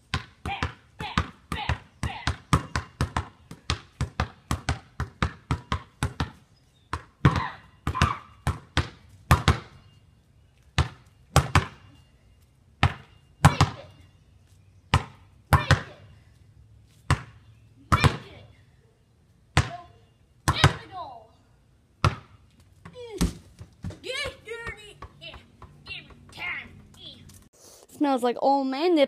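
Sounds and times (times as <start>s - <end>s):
basketball bouncing on concrete: 0.0s - 9.8s, 10.8s - 11.9s, 12.8s - 14.0s, 14.9s - 16.0s, 16.9s - 18.4s, 19.5s - 21.0s, 22.0s - 27.1s.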